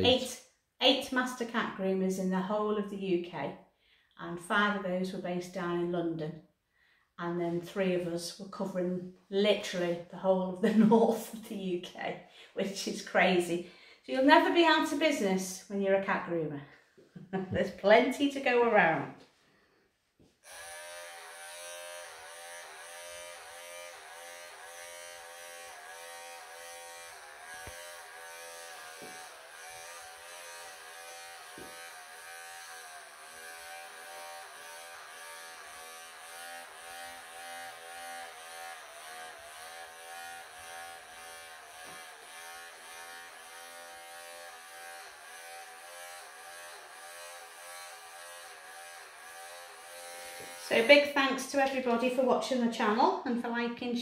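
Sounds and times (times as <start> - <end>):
electric pet clippers buzzing: 20.4 - 51.8.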